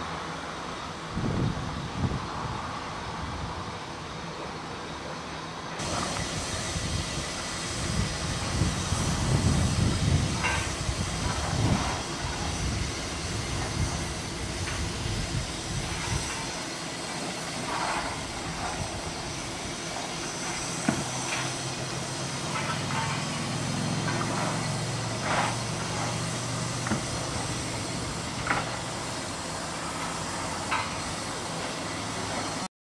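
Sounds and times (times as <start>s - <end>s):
railway carriages rolling past: 0.0s - 32.7s
wheels and couplings clanking: 8.3s - 32.6s.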